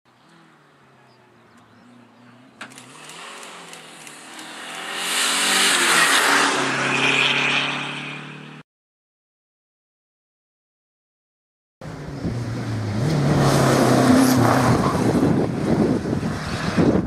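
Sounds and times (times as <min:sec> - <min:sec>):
rally car engine revving: 0:00.3 - 0:08.6, 0:11.8 - 0:17.0.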